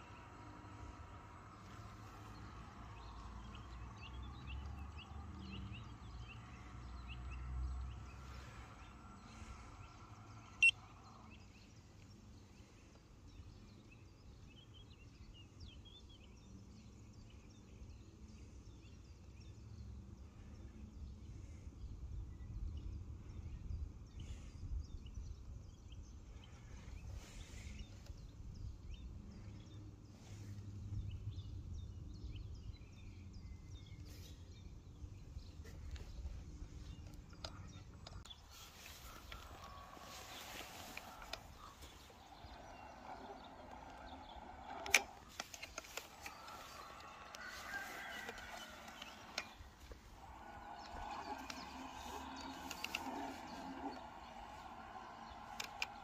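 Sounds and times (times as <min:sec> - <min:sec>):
wind rumble on microphone: 0:20.5 - 0:44.8.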